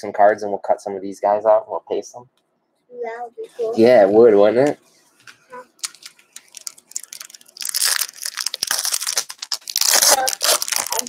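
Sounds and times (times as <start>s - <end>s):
foil wrapper tearing and crinkling: 5.8s - 11.0s.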